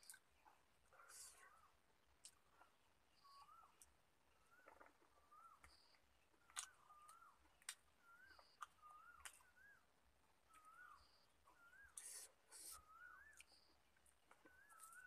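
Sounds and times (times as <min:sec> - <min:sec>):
faint whistled bird call: 0:03.1 - 0:15.0.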